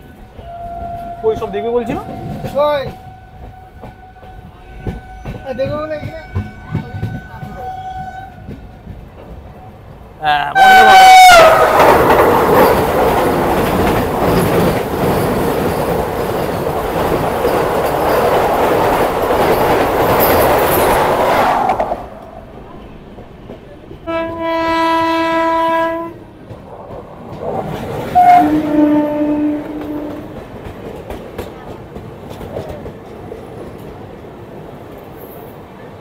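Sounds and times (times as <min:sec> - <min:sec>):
train rushing and clattering: 0:00.0 - 0:36.0
train horn blast: 0:00.4 - 0:08.5, 0:10.6 - 0:11.7, 0:24.0 - 0:26.3, 0:28.1 - 0:30.4.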